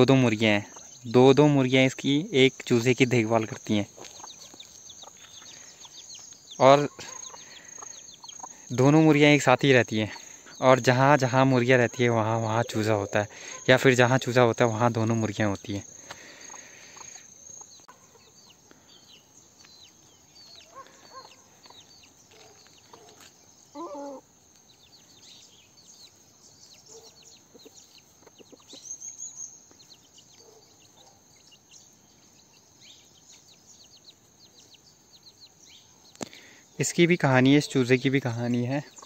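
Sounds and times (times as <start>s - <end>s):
chickens clucking: 0.0s - 18.6s, 20.5s - 24.3s, 26.8s - 32.7s, 37.2s - 39.0s
insect drone: 0.0s - 26.8s
small high chirps: 0.3s - 13.9s, 15.4s - 36.8s.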